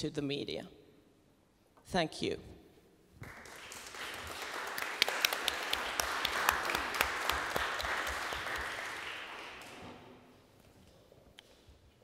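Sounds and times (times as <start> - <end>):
audience applause: 3.2 - 10.1.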